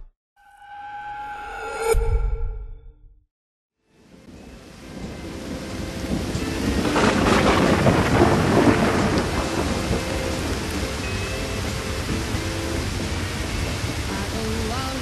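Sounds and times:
steady rain: 3.9 - 15.0
thunder rolling: 4.4 - 14.1.

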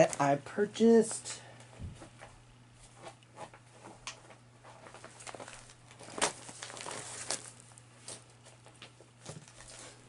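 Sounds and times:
packaging crinkling and rustling: 3.0 - 10.0.

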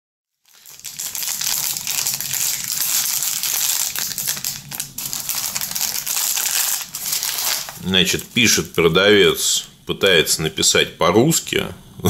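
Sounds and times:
plastic wrappers crinkling: 0.4 - 9.9.

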